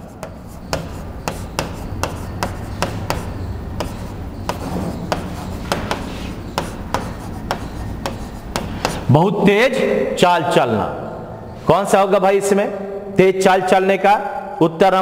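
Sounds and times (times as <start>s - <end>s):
marker pen on whiteboard: 0.0s - 9.8s.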